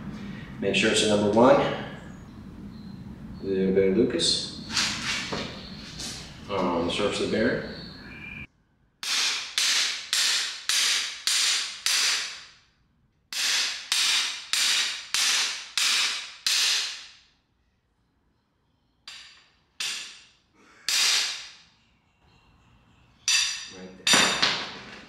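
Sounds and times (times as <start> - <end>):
hammer striking steel bar: 9.0 - 12.6, 13.3 - 17.3, 19.1 - 21.6, 23.3 - 24.7.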